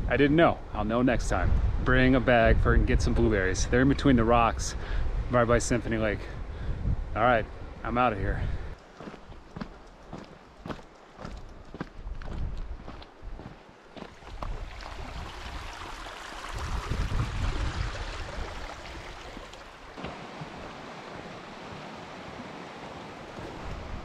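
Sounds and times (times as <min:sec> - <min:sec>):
wind gusting on microphone: 0:00.0 - 0:24.0
footsteps on rocky trail: 0:08.4 - 0:14.6, 0:19.3 - 0:20.6
creek running over rocks: 0:08.7 - 0:24.0.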